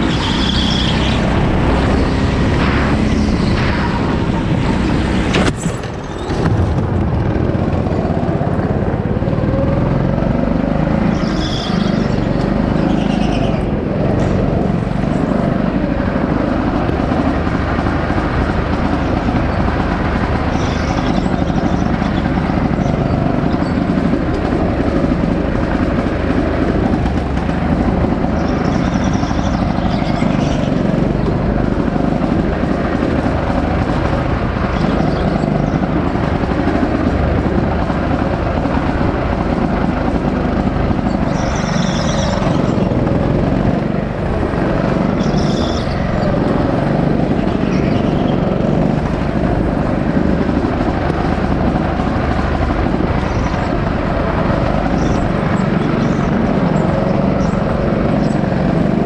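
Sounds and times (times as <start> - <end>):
go-kart engine drone: 0.0 - 59.0
tyre squeals: 11.1 - 13.6, 45.2 - 46.1.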